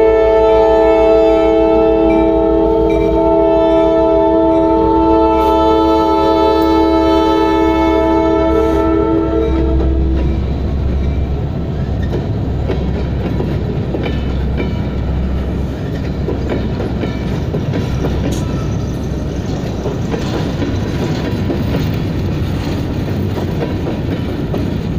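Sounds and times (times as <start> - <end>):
train horn blast: 0.0 - 10.8
train wheels rumbling on rails: 0.0 - 24.9
clicks over rail joints: 19.5 - 24.9.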